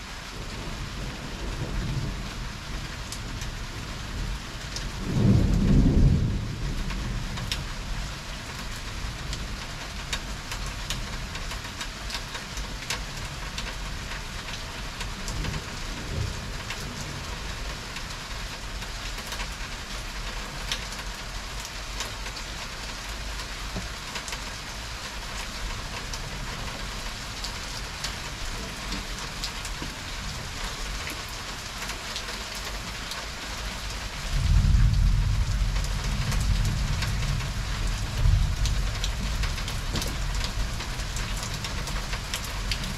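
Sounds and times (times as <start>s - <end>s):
heavy rain falling: 0.0s - 42.9s
raindrops ticking on surfaces: 0.0s - 42.9s
thunder rumbling: 0.4s - 7.5s, 34.2s - 41.6s.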